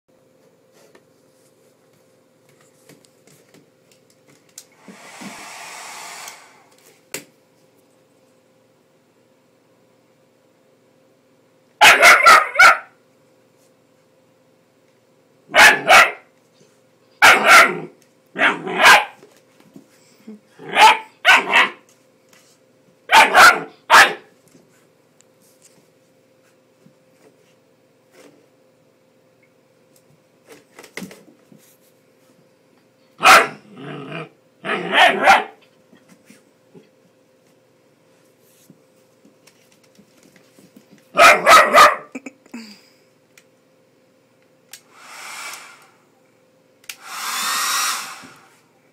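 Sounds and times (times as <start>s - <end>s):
hair dryer blowing: 4.6s - 6.8s, 44.8s - 46.0s, 46.9s - 48.7s
puppy barking: 11.8s - 13.0s, 15.5s - 16.3s, 17.2s - 19.2s, 20.6s - 21.8s, 23.1s - 24.3s, 33.2s - 33.6s, 34.6s - 35.6s, 41.2s - 42.2s.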